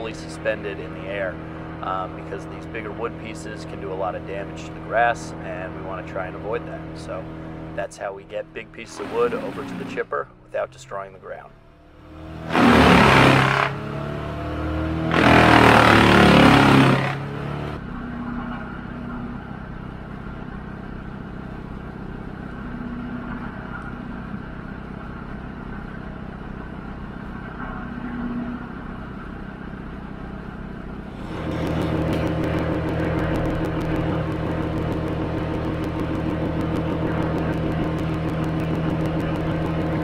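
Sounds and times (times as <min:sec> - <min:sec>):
engine drone: 0:00.0 - 0:40.0
wood chipper grinding wood: 0:12.4 - 0:13.8, 0:15.1 - 0:17.2, 0:31.1 - 0:40.0.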